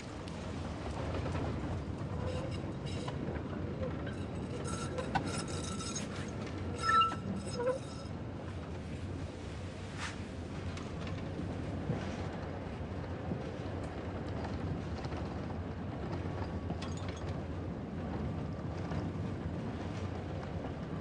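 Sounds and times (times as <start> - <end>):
train rumbling on rails: 0.0 - 21.0
high squeal: 4.1 - 8.1.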